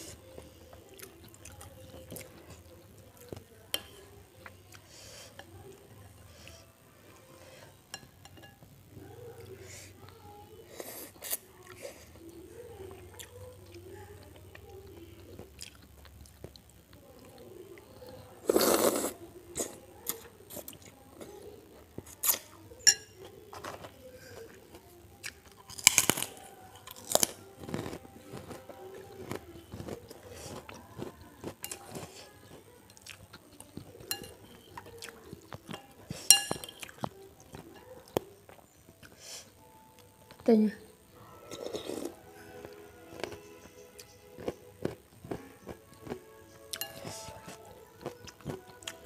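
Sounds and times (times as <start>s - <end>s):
crunchy cracker chewing: 23.5s - 35.9s.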